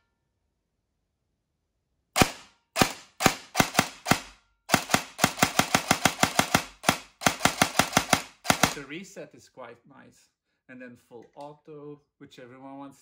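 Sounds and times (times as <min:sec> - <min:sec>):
airsoft gun dry-firing shots: 0:02.2 - 0:08.9.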